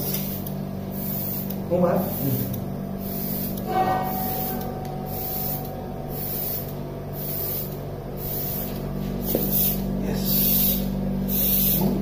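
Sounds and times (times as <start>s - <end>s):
low hum of airway equipment: 0.0s - 12.0s
short bursts of hissing air: 0.1s - 1.5s, 3.0s - 3.6s, 6.2s - 11.8s.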